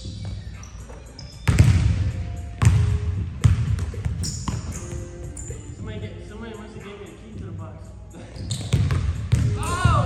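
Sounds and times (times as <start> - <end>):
basketball bouncing on wooden floor: 1.4 - 1.9, 2.6 - 5.0, 8.6 - 10.0.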